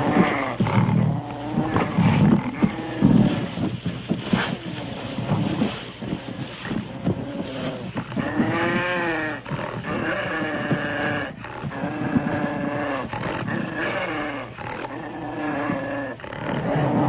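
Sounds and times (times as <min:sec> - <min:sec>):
animals growling and scuffling: 0:00.0 - 0:17.0
animal wailing cries: 0:07.0 - 0:17.0.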